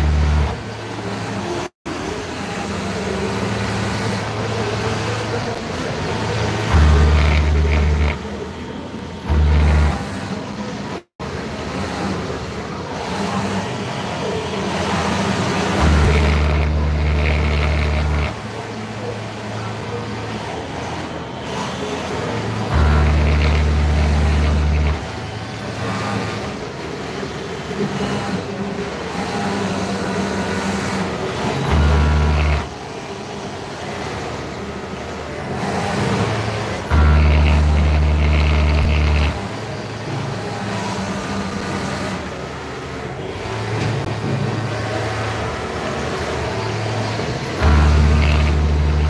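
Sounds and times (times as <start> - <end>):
sewing machine humming: 0.0 - 1.6, 6.3 - 8.4, 9.2 - 11.0, 14.8 - 18.5, 21.4 - 32.8, 35.5 - 42.4, 43.5 - 49.0
din of other machines: 0.0 - 49.0.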